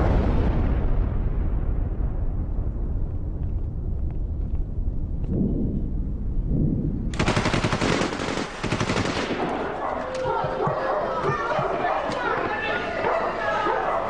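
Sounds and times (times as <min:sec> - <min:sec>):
low rumble: 0:00.0 - 0:07.8
rapid automatic gunfire: 0:07.1 - 0:09.8.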